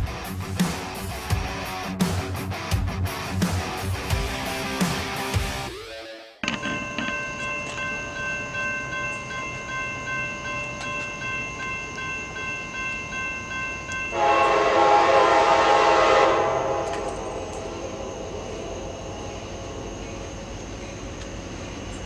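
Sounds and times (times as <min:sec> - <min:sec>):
crossing warning bell ringing: 0:06.4 - 0:20.2
train horn blast: 0:14.1 - 0:19.0.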